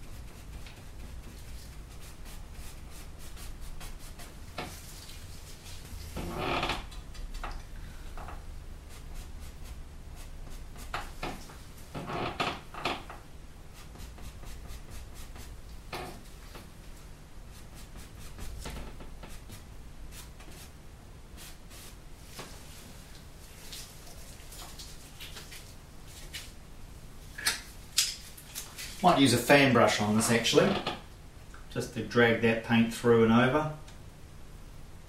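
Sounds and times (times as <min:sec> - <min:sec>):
paintbrush scraping: 0:00.0 - 0:06.4, 0:08.8 - 0:11.9, 0:13.7 - 0:20.8, 0:21.4 - 0:26.6, 0:28.2 - 0:29.4
low steady hum: 0:00.0 - 0:35.0.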